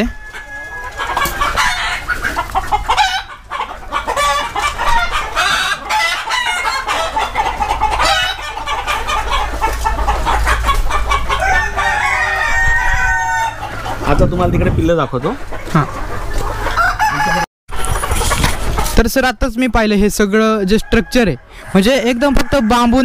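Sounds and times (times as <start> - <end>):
rooster crowing: 0.0 - 2.1, 11.4 - 13.9, 16.8 - 17.5, 20.6 - 23.0
chickens clucking: 0.0 - 19.2, 19.8 - 23.0.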